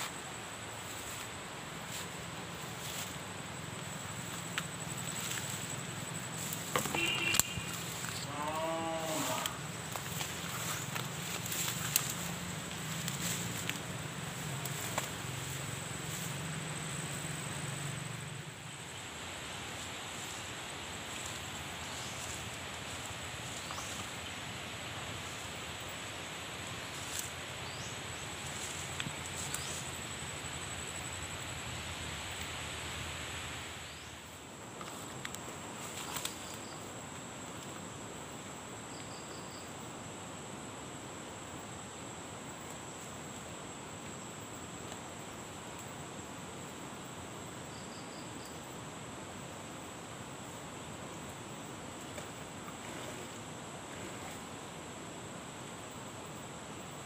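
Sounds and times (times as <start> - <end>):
leaves rustling: 0.0 - 38.5
outdoor background hiss: 0.0 - 57.0
twig clicks: 6.4 - 8.2, 9.4 - 12.3, 36.0 - 36.6.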